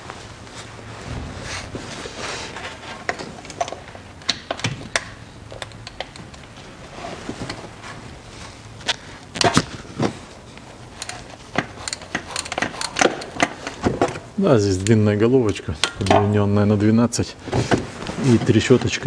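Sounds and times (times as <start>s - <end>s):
ratchet clicking against metal: 11.8s - 13.5s.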